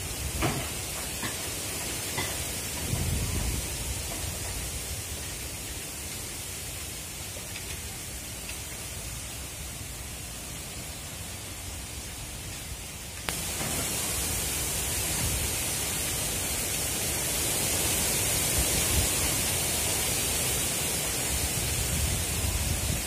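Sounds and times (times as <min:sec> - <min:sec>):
wind rush on microphone: 0:02.8 - 0:05.3, 0:17.6 - 0:23.0.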